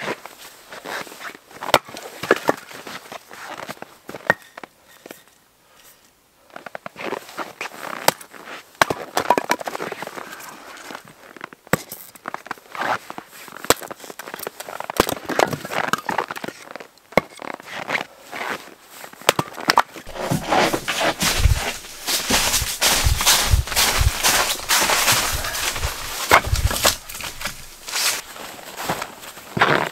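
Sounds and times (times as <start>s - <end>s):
axe chopping wood: 19.3s - 28.2s
wood cracking and clattering: 20.1s - 28.2s.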